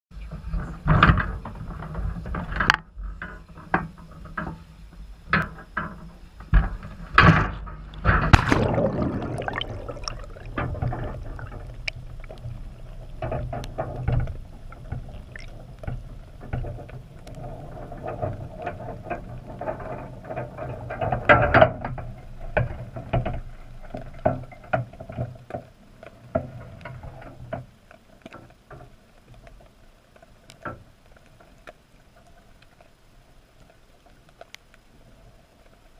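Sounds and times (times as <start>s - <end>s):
muffled underwater rumbling: 6.5s - 27.6s
underwater clicks: 7.9s - 17.5s
loud splash into water: 8.2s - 11.7s.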